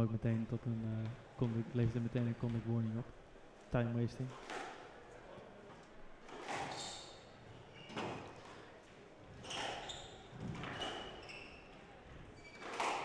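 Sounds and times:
shoes squeaking on wooden floor: 0:06.3 - 0:08.7, 0:09.3 - 0:13.0.

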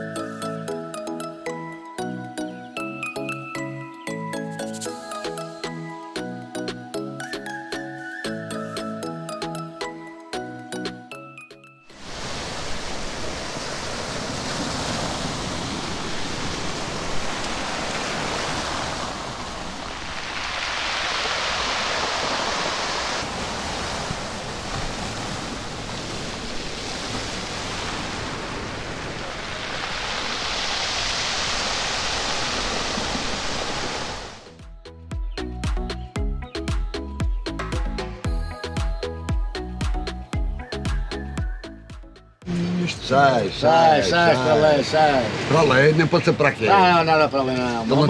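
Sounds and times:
waves washing up pebble beach: 0:12.0 - 0:34.4.

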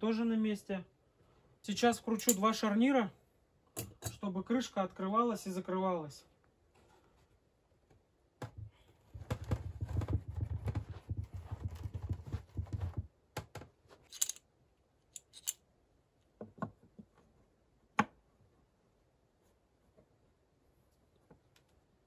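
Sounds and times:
metal hinge clicks and clinks: 0:02.2 - 0:02.4, 0:03.8 - 0:04.2, 0:14.1 - 0:14.4, 0:15.2 - 0:15.6
log knocking on wooden sawhorse: 0:08.4 - 0:13.1.

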